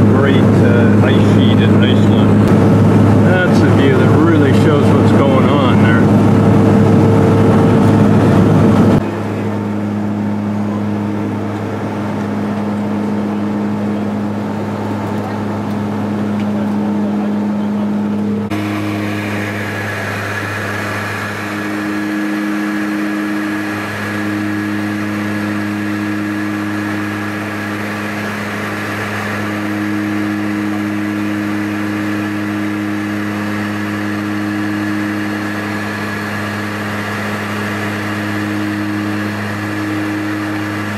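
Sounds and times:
propeller engines droning: 0:00.0 - 0:40.9.

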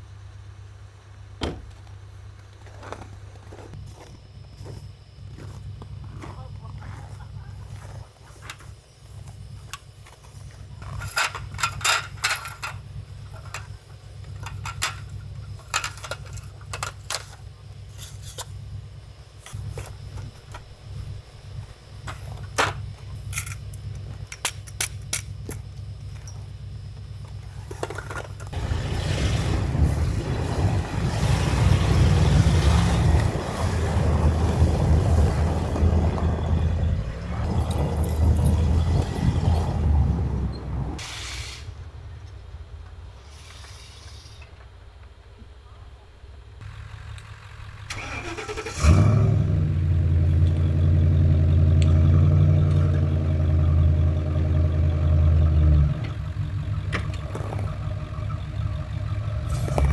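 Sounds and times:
low hum: 0:00.0 - 0:44.5
metal table clinking and rattling: 0:10.9 - 0:12.8
van driving through snow: 0:28.5 - 0:44.0, 0:46.6 - 0:59.9.

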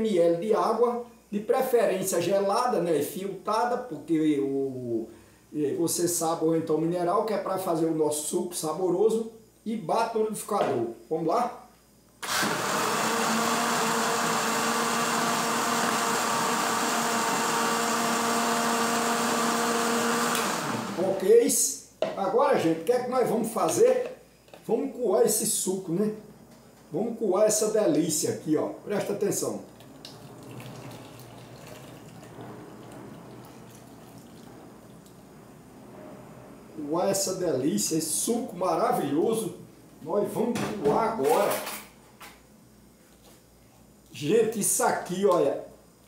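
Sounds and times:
blender running: 0:12.2 - 0:21.2, 0:29.8 - 0:35.2
juice pouring and trickling: 0:29.6 - 0:35.3.

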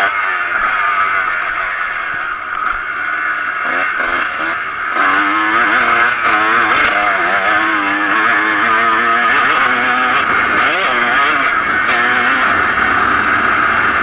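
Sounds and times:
motocross engine revving: 0:00.0 - 0:14.0.

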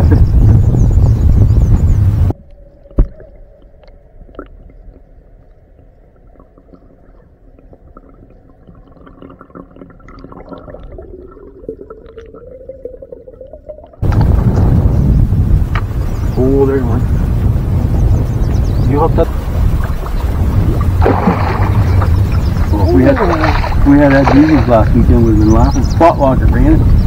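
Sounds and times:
low hum: 0:00.0 - 0:27.0
underwater gurgling: 0:02.3 - 0:14.8, 0:19.1 - 0:26.0
sharp underwater thump: 0:21.0 - 0:22.2.

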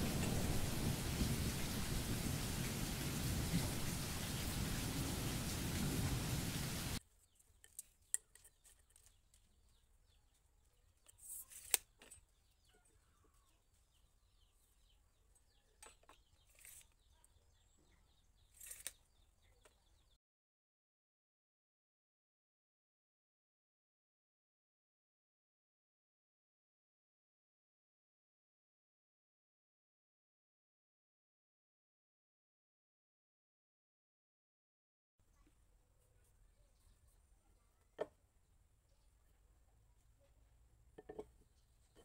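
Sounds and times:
heavy rain: 0:00.0 - 0:07.0
hand tools clicking and scraping: 0:15.8 - 0:17.0.

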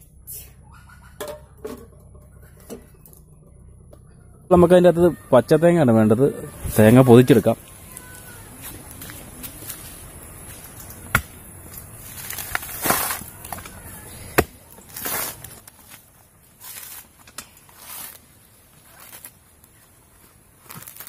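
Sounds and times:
coconut husk ripping: 0:07.0 - 0:21.0.

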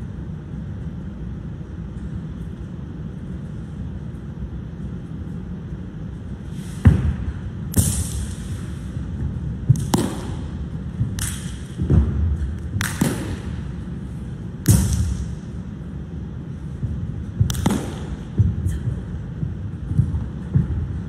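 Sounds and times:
sharp slaps and swishes: 0:06.6 - 0:13.9, 0:14.5 - 0:15.6, 0:17.4 - 0:18.8.

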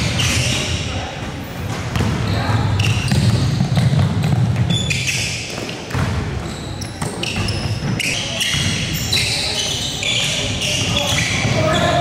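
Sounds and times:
sneakers squeaking: 0:00.0 - 0:12.0
voices echoing in a hall: 0:00.0 - 0:12.0
ball bouncing: 0:01.6 - 0:06.2.

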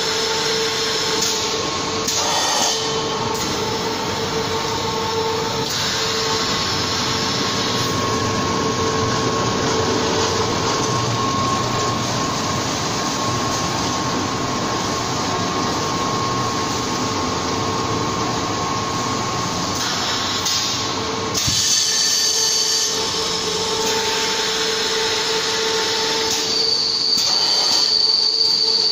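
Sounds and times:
machine running with steady hum: 0:00.0 - 0:28.9
hiss with high whistling tones: 0:24.0 - 0:28.9.

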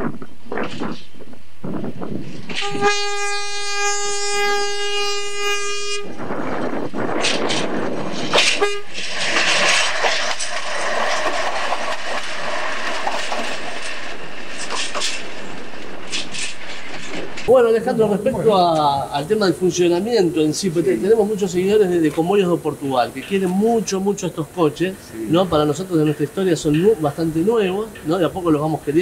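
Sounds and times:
railcar engine and wheels rumbling: 0:00.0 - 0:29.0
railcar horn blast: 0:02.5 - 0:06.3, 0:08.3 - 0:09.1.

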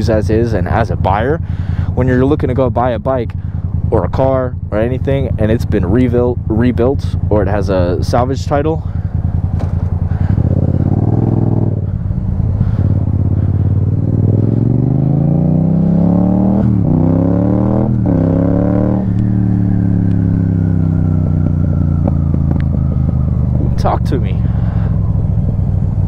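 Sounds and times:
motorcycle engine accelerating: 0:00.0 - 0:26.0
motorcycle gear upshifts: 0:09.4 - 0:11.8, 0:12.6 - 0:23.6.

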